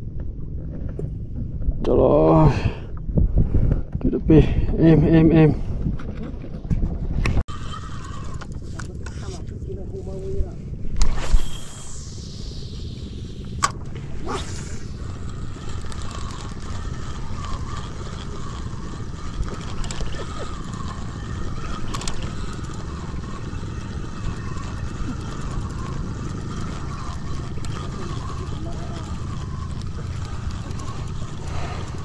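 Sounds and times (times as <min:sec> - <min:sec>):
wind on microphone: 0:00.8 - 0:07.5
fishing reel whirring: 0:07.4 - 0:09.4, 0:10.9 - 0:32.0.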